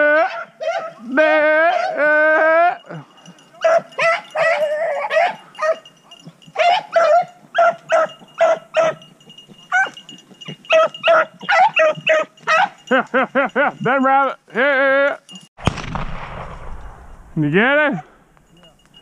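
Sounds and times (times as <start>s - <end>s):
hounds barking and baying: 0.0s - 14.2s.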